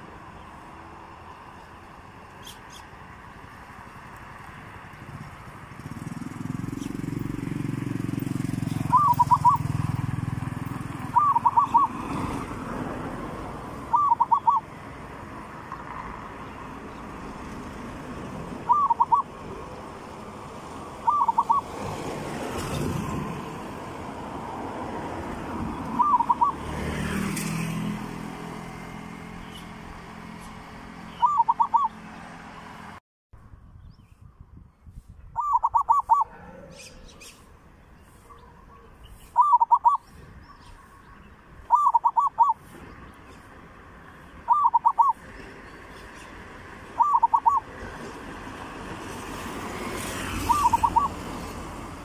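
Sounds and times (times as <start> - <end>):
dove cooing: 8.7 - 9.8, 11.0 - 12.2, 13.9 - 14.7, 18.6 - 19.4, 20.9 - 21.8, 25.8 - 26.7, 31.2 - 32.0, 35.4 - 37.3, 39.4 - 40.1, 41.7 - 42.6, 44.5 - 45.2, 47.0 - 47.7, 50.4 - 51.2.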